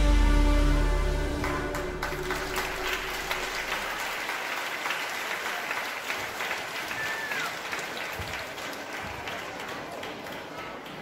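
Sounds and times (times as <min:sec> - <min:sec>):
show music: 0:00.0 - 0:04.2
audience applauding: 0:01.4 - 0:11.0.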